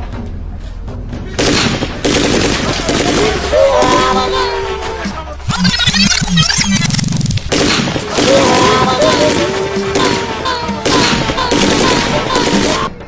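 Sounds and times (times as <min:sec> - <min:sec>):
machine-gun fire: 0:01.4 - 0:04.2, 0:07.0 - 0:13.0.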